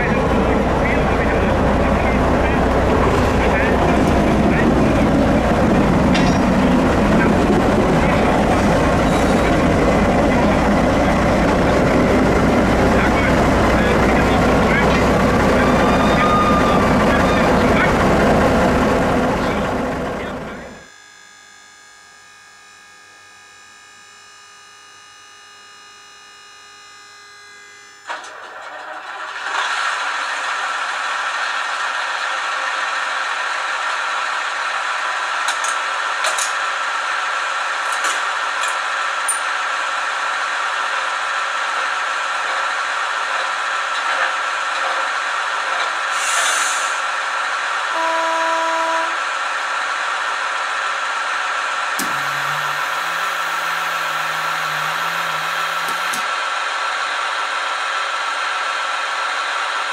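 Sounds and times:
diesel engine running: 0:00.0 - 0:21.0, 0:46.8 - 0:59.8
model locomotive hum: 0:00.0 - 0:29.8, 0:47.6 - 0:59.7
short hiss of air: 0:46.1 - 0:47.0
train horn blast: 0:47.9 - 0:49.3, 0:52.0 - 0:56.2
rough loud noise: 0:52.0 - 0:56.2.

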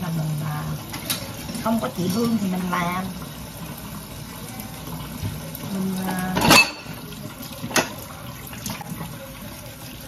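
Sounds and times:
tap water running into sink: 0:00.0 - 0:10.0
dishes clattering: 0:06.0 - 0:08.8.

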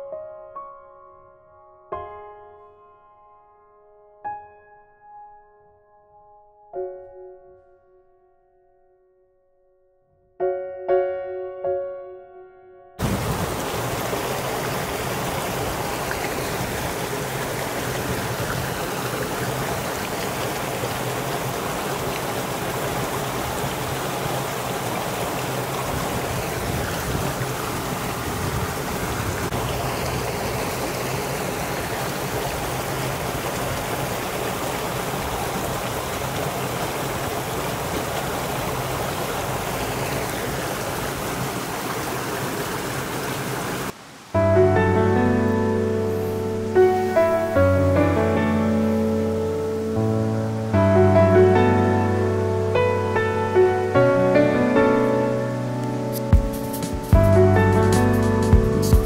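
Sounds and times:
flowing water rushing: 0:13.0 - 0:59.0.

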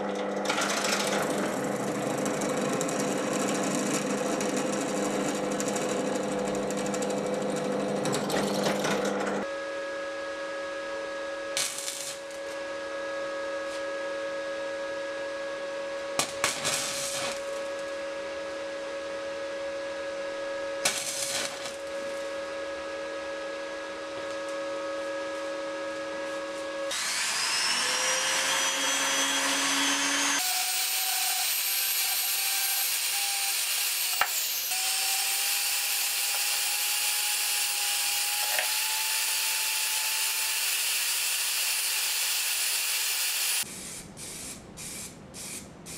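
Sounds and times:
drill press cutting steel: 0:00.4 - 0:09.4, 0:26.9 - 0:43.6
steady electrical hum: 0:09.4 - 0:26.9
welding arc crackling: 0:11.6 - 0:12.6, 0:16.2 - 0:18.0, 0:20.8 - 0:22.4
rotary tool whining: 0:26.9 - 0:43.7.

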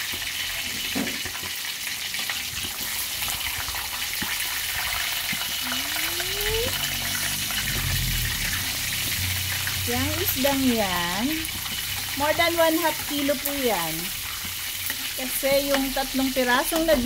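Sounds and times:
fish sizzling in hot oil: 0:00.0 - 0:17.0
metal spatula in oil: 0:06.7 - 0:17.0.

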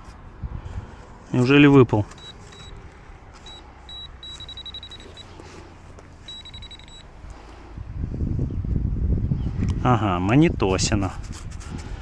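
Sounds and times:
metal detector beeping: 0:02.1 - 0:02.8, 0:03.4 - 0:05.5, 0:06.2 - 0:07.1.

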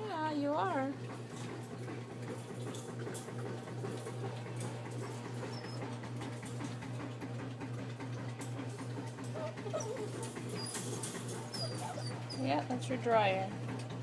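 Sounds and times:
dryer humming: 0:00.0 - 0:14.0
puppies pawing wire pen: 0:01.2 - 0:14.0
puppy squeak: 0:09.4 - 0:12.5.

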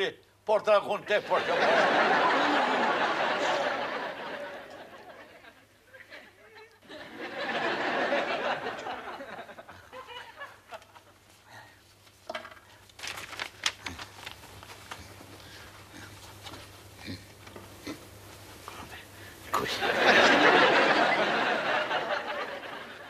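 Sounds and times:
audience laughter: 0:01.2 - 0:06.3, 0:06.9 - 0:11.1, 0:19.7 - 0:23.0
paper sheets rustling: 0:11.9 - 0:16.8.

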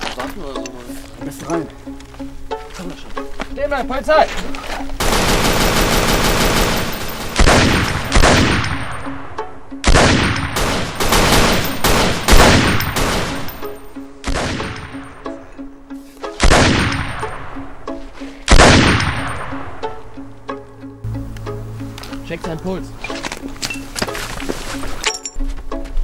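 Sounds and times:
pistol gunshots echoing: 0:05.0 - 0:09.1, 0:09.8 - 0:15.0.

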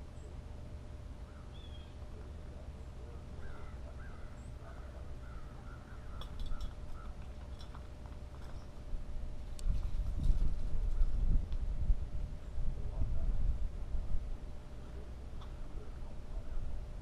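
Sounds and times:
steady low rumble: 0:00.0 - 0:17.0
blue jays calling: 0:01.2 - 0:07.5.

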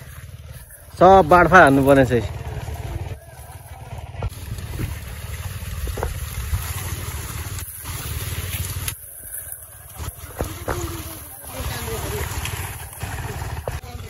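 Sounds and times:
knocks and splashes in mud: 0:00.0 - 0:14.0
small engine rumbling: 0:00.0 - 0:14.0.

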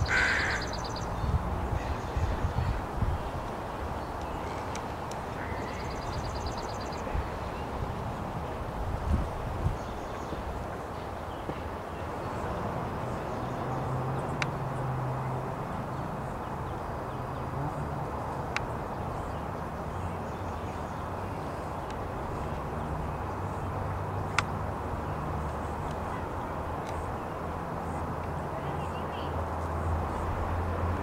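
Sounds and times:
outdoor background rumble: 0:00.0 - 0:07.6.

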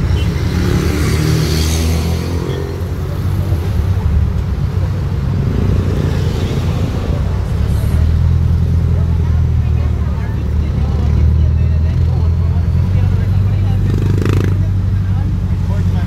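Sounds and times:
vehicle engines passing: 0:00.0 - 0:16.0.

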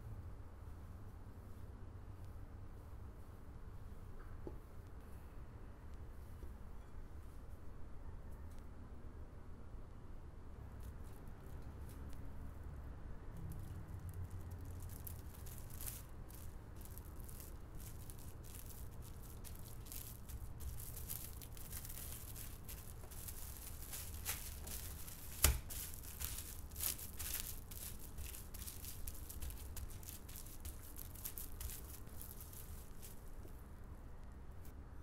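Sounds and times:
cling film crinkling: 0:13.4 - 0:33.6.

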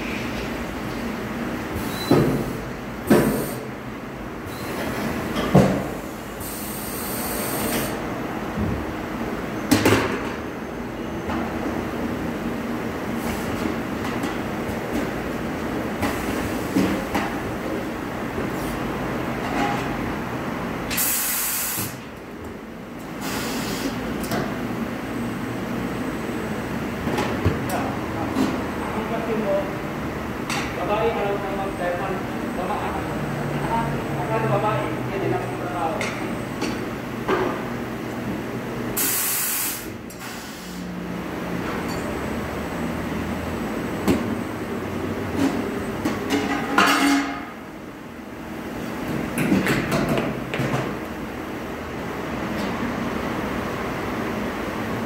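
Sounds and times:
low shop rumble: 0:00.0 - 0:39.2, 0:39.8 - 0:55.0
steady workshop hum: 0:00.0 - 0:55.0
compressed air hisses: 0:23.2 - 0:24.0, 0:39.0 - 0:40.8.

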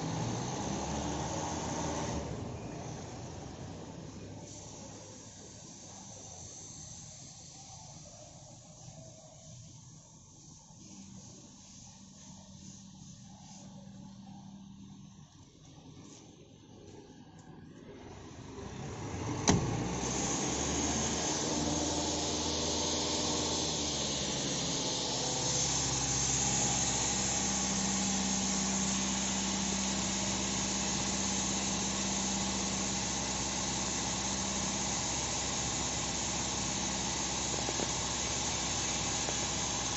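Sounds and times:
diesel engine idling: 0:00.0 - 0:08.1, 0:18.0 - 0:39.9.

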